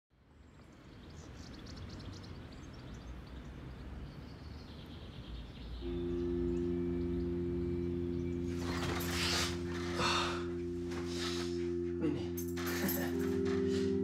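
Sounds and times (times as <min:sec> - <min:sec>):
birds chirping: 0:00.3 - 0:14.0
sustained chord: 0:05.8 - 0:14.0.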